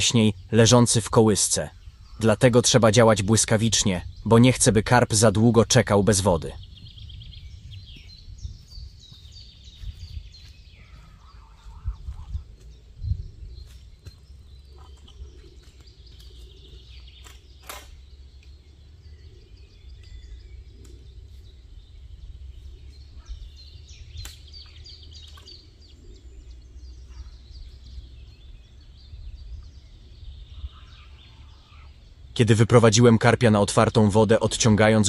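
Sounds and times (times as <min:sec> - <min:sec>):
small birds chirping: 0:00.0 - 0:35.0
wind rumble on microphone: 0:03.8 - 0:05.1, 0:06.5 - 0:32.4.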